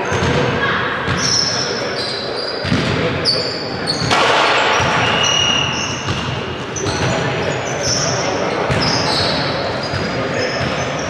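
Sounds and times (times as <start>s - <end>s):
shoes squeaking on court: 1.1s - 11.0s
basketball bouncing: 2.6s - 3.0s, 4.0s - 5.4s, 6.0s - 7.2s.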